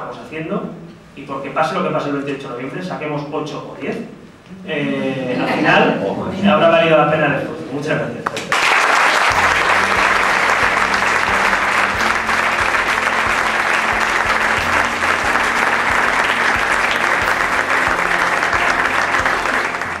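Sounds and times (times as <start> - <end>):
audience applauding: 8.5 - 20.0
music with steady beat: 9.3 - 20.0.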